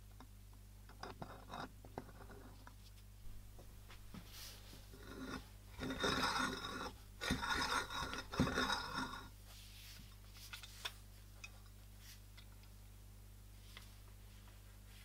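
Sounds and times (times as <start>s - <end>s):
hand-crank coffee grinder grinding: 4.9s - 9.3s.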